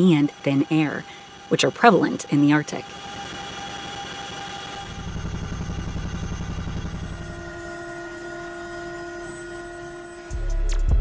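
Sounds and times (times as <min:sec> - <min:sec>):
helicopter cabin drone: 0:00.0 - 0:11.0
rapid low throbbing: 0:02.9 - 0:11.0.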